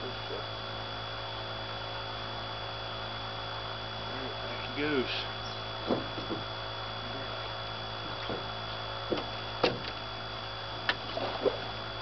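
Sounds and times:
steady electrical hum: 0.0 - 12.0
knocks and thumps: 5.8 - 6.5, 8.0 - 8.5, 9.1 - 9.9.

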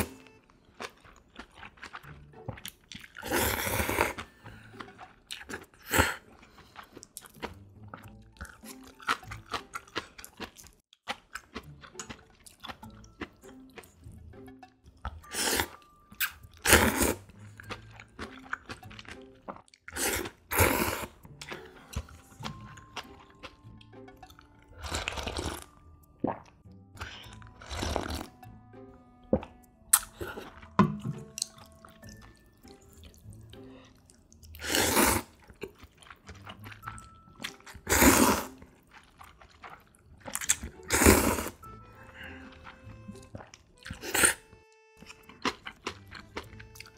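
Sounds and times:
person slurping noodles: 3.0 - 7.0, 15.2 - 17.4, 19.9 - 22.2, 24.8 - 25.7, 27.0 - 28.4, 33.6 - 35.7, 37.7 - 38.6, 40.4 - 42.8, 43.9 - 44.4.

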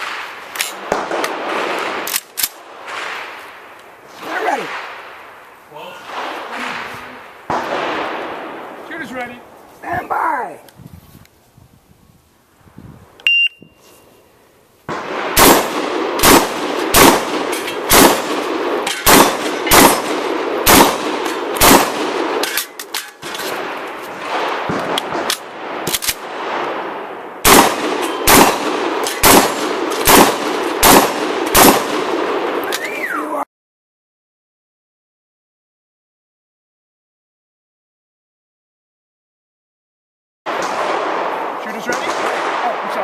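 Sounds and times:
shotgun firing: 0.0 - 3.4, 6.0 - 8.7, 14.9 - 32.8, 40.5 - 43.0
short electronic beep: 13.2 - 13.8.

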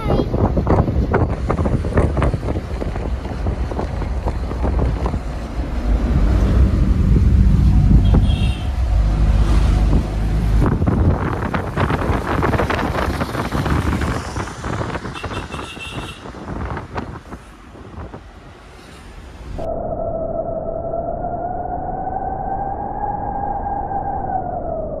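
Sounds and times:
wind buffeting microphone: 0.0 - 18.7
engine and road noise: 0.0 - 19.7
low engine hum: 0.9 - 14.1.

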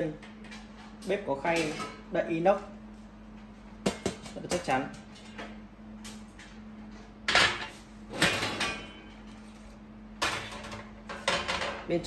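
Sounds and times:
metal fryer lids clanking: 0.0 - 2.1, 7.3 - 9.2, 10.2 - 11.8.

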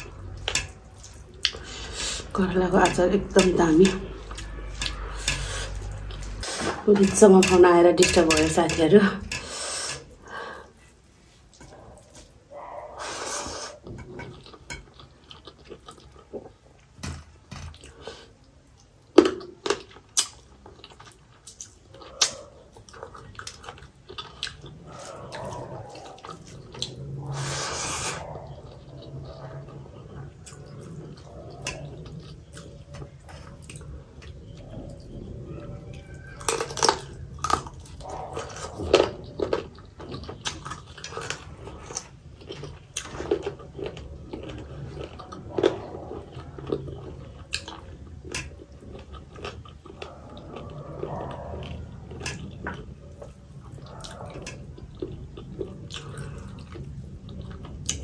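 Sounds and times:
chewing: 0.0 - 58.0.

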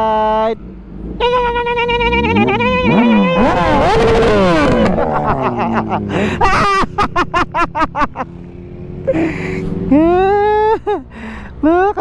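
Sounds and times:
motorcycles riding past: 2.2 - 10.6
burst of laughter: 4.8 - 8.2.

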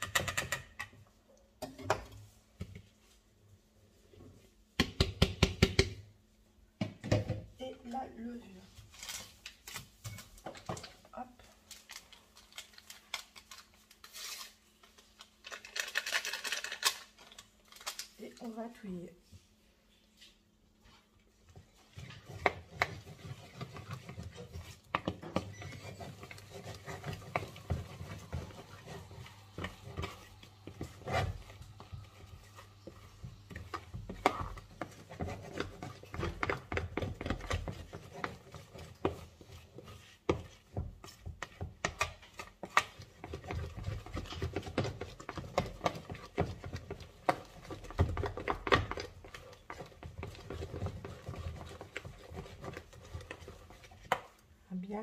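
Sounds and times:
fork scraping plastic bowl: 21.8 - 54.3.

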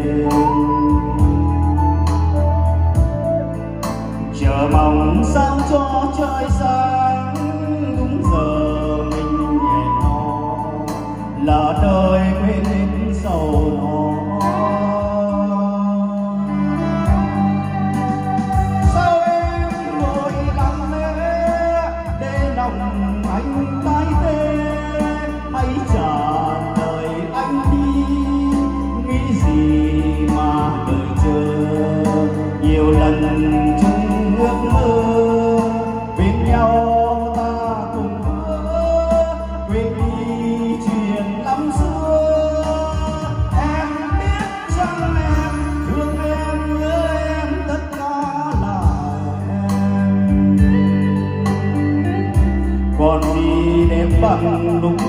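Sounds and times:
karaoke backing track with bass: 0.0 - 55.0
man singing into a microphone: 0.0 - 55.0.

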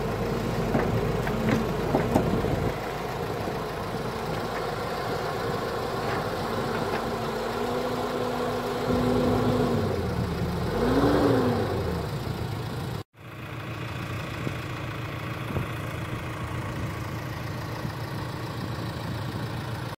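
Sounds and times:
excavator diesel engine revving: 0.0 - 13.0.

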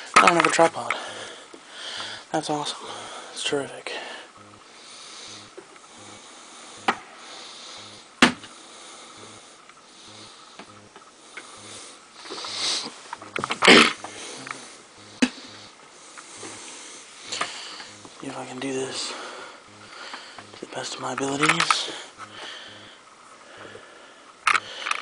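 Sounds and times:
breathy rushes of noise: 0.0 - 20.8
handling clicks and knocks: 21.1 - 21.9.

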